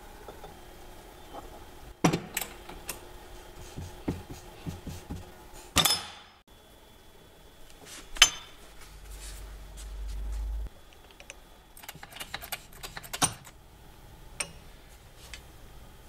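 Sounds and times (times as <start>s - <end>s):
low hum: 6.5s - 12.0s.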